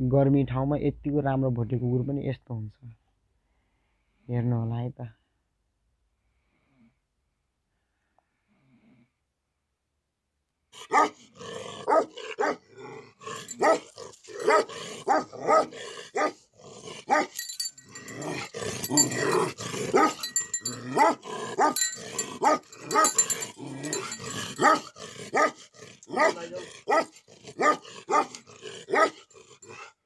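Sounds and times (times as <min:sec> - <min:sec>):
dog barking: 0:10.8 - 0:11.2, 0:11.8 - 0:12.7, 0:13.5 - 0:16.4, 0:17.1 - 0:17.4, 0:19.0 - 0:29.8.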